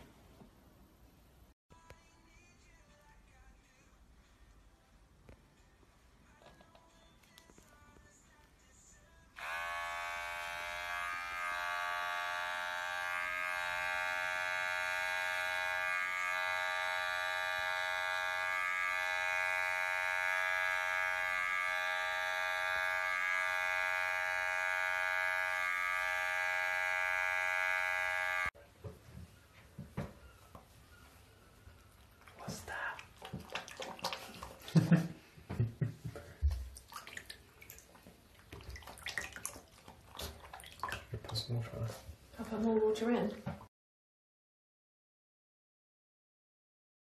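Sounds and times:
electric hair clipper buzzing: 9.4 - 28.6.

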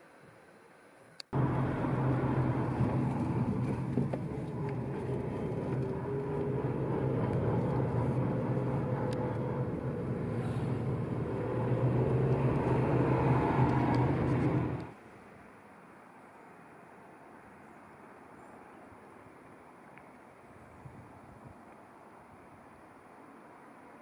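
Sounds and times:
road and tyre noise: 1.2 - 24.0
car engine hum: 1.3 - 15.0.

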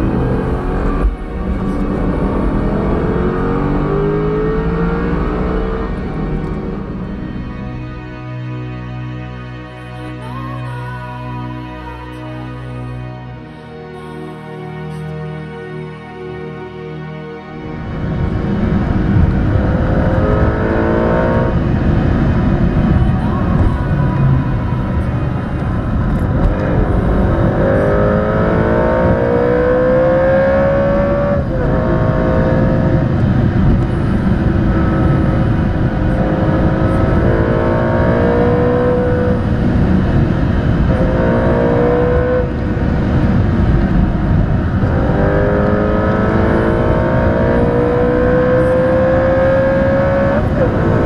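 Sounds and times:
car engine accelerating through gears: 0.0 - 7.8, 17.7 - 51.0
road and tyre rumble: 0.0 - 10.0, 17.6 - 51.0.

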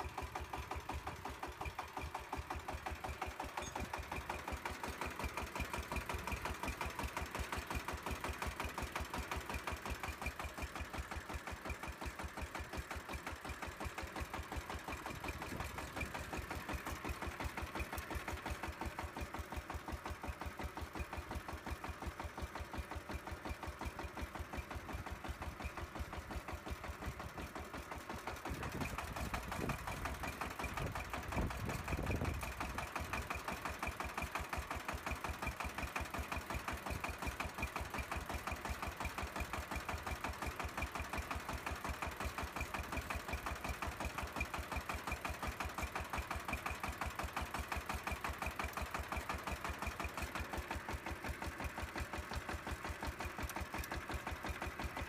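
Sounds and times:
small motor knocking: 0.0 - 55.0.

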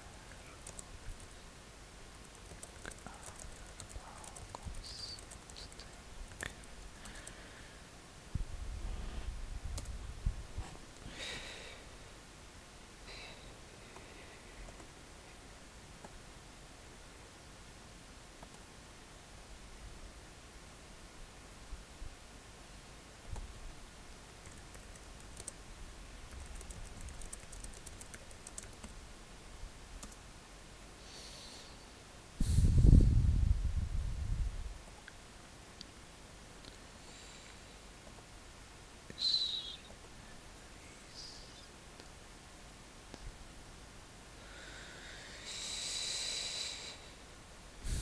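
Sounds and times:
keyboard typing: 0.6 - 1.3, 2.2 - 7.4, 24.4 - 25.6, 26.3 - 29.0, 30.0 - 30.2.

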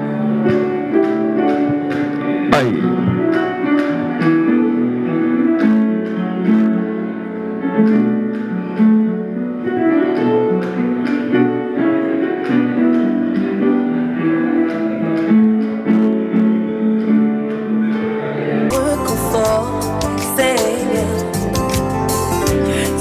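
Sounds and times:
plucked guitar instrumental music: 0.0 - 23.0.

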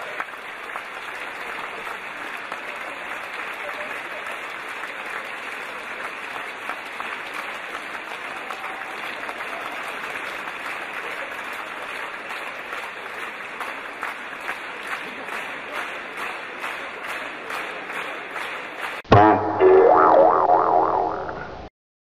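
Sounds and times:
audience applauding: 0.0 - 19.0.

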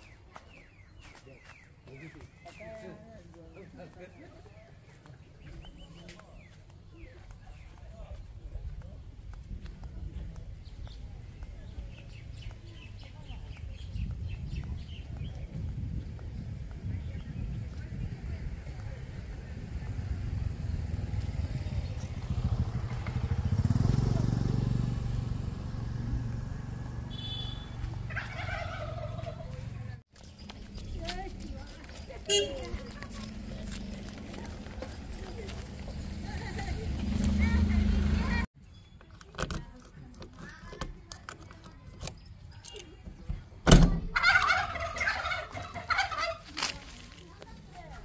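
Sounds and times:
flip-flop footsteps on pavement: 0.0 - 22.2, 25.6 - 38.6, 44.9 - 48.0
low engine hum: 5.6 - 38.5.

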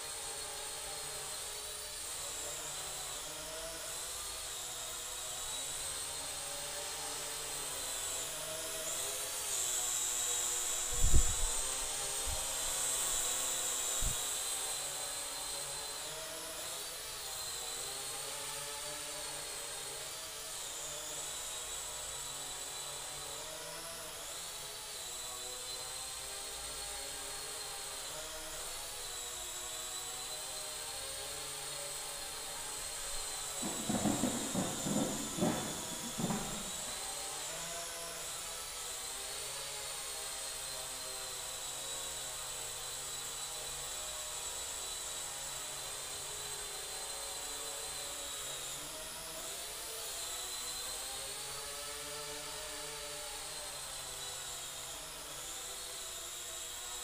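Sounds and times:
model plane motors whining: 0.0 - 57.0
low thumps: 33.6 - 37.0.

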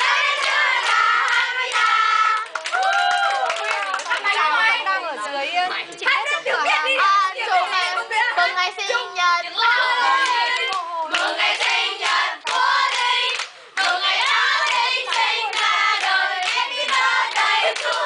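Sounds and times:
group singing birthday song: 0.0 - 2.6, 6.2 - 18.0
people clapping along: 0.0 - 4.8, 10.0 - 18.0.

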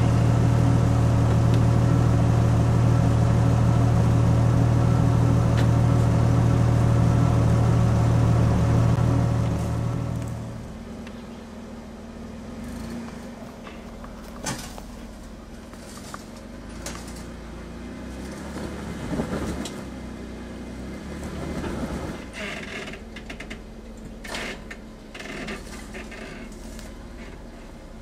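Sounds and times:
car engine running at low revs: 0.0 - 28.0
scraping over rocks: 12.8 - 17.4.

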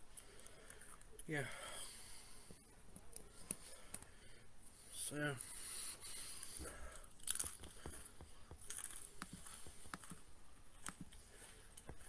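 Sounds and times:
person chewing crunchy snack: 6.1 - 12.0.

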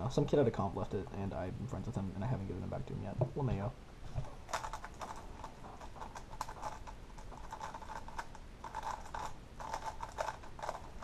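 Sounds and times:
puzzle cube clicking and clacking: 4.2 - 11.0.

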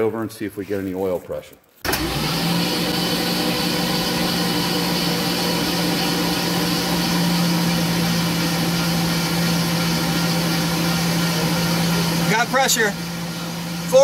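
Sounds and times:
car engine idling: 6.3 - 14.0.

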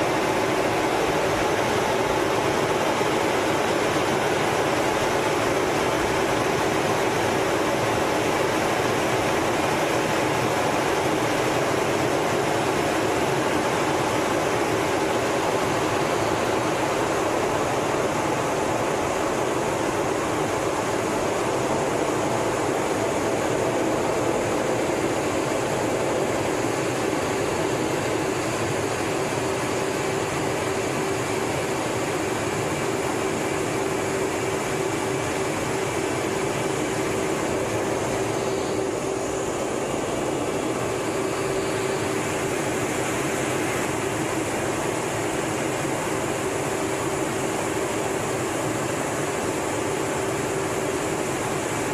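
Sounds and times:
constant hum: 0.0 - 51.9
jet engine and airflow noise: 0.0 - 51.9.

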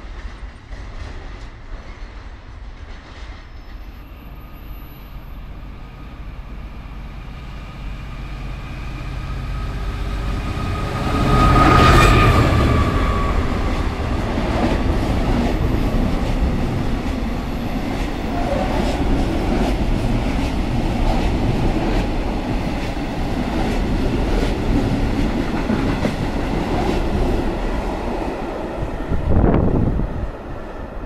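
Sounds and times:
train clatter: 0.0 - 3.6
freight train rolling past: 0.0 - 31.0.

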